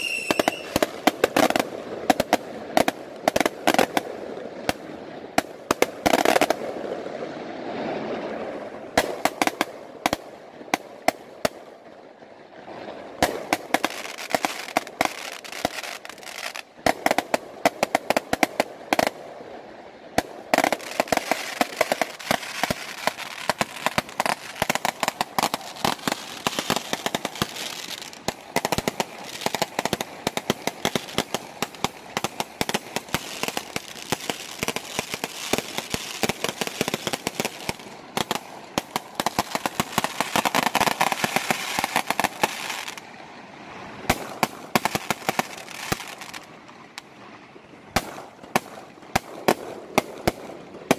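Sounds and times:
fireworks bangs and crackling: 0:00.0 - 0:04.1, 0:05.4 - 0:06.8, 0:09.0 - 0:11.6, 0:13.2 - 0:19.2, 0:20.2 - 0:43.0, 0:44.1 - 0:46.5.

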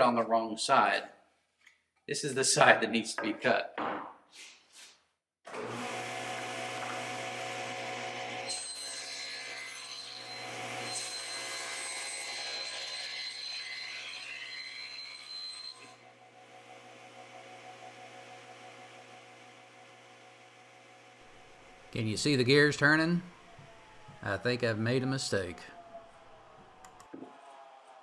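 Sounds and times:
saw blade cutting plywood: 0:05.5 - 0:19.8
table saw motor hum: 0:05.5 - 0:25.2.

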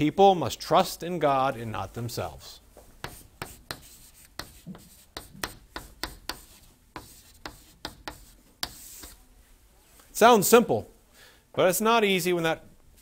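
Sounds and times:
chalk tapping and scraping on board: 0:02.8 - 0:09.2.

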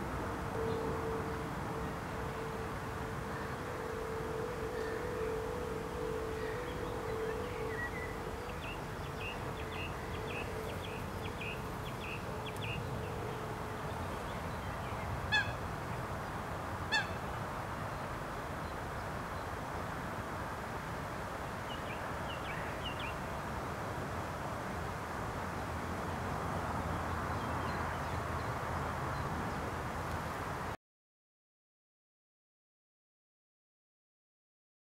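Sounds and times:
steady outdoor hiss: 0:00.0 - 0:30.8
loud honk-like bird calls: 0:15.3 - 0:15.6, 0:16.9 - 0:17.2.

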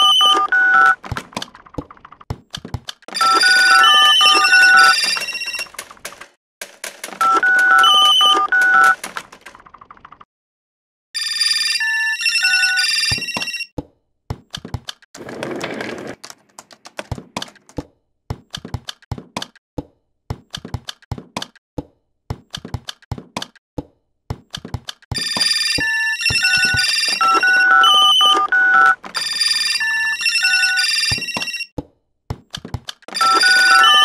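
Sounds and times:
sharp clicks and knocks: 0:13.8 - 0:15.1, 0:22.3 - 0:23.6, 0:24.3 - 0:25.2, 0:31.8 - 0:33.2.

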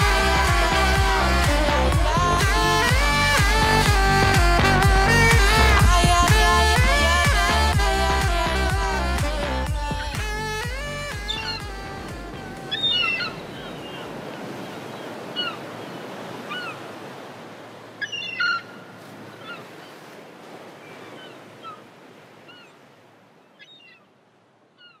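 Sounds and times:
surf washing: 0:00.0 - 0:24.7
bird calls: 0:09.9 - 0:17.1, 0:18.0 - 0:20.0, 0:20.7 - 0:24.1, 0:24.7 - 0:25.0.

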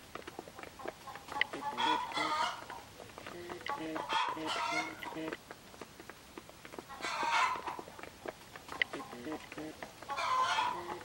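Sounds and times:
beaks pecking grain off concrete: 0:00.0 - 0:11.0
chickens clucking: 0:00.0 - 0:11.0
harsh chicken calls: 0:01.1 - 0:05.4, 0:06.9 - 0:07.8, 0:08.7 - 0:11.0.

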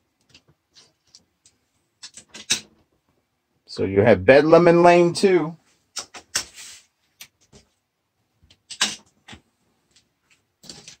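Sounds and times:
toy cars clicking on plastic track: 0:08.7 - 0:09.0
toy cars clattering: 0:08.7 - 0:09.4.

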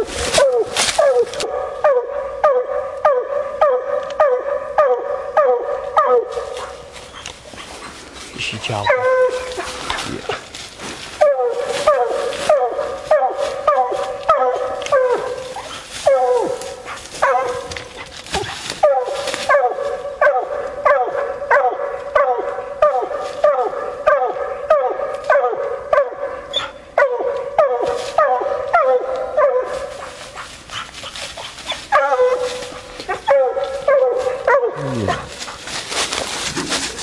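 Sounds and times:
dog barking: 0:00.3 - 0:06.8, 0:08.8 - 0:09.8, 0:11.2 - 0:17.8, 0:18.8 - 0:30.9, 0:31.7 - 0:35.3.

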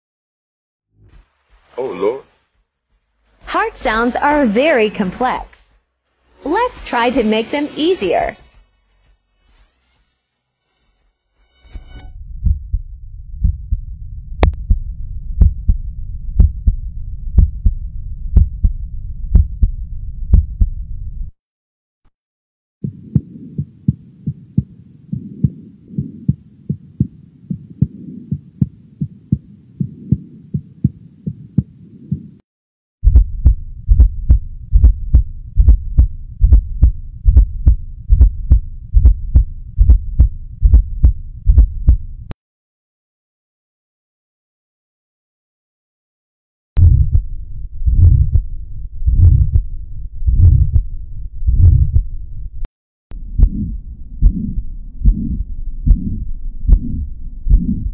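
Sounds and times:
heartbeat lub-dub: 0:12.2 - 0:21.3, 0:22.8 - 0:32.4, 0:33.0 - 0:42.4, 0:46.8 - 0:52.6, 0:53.2 - 0:57.9
gallop heart rhythm: 0:12.4 - 0:12.8, 0:13.4 - 0:13.8, 0:14.4 - 0:14.8, 0:15.4 - 0:20.8, 0:22.8 - 0:32.4, 0:33.0 - 0:42.3, 0:47.9 - 0:48.5, 0:49.1 - 0:49.7, 0:50.3 - 0:50.9, 0:51.5 - 0:52.1, 0:53.4 - 0:57.9.

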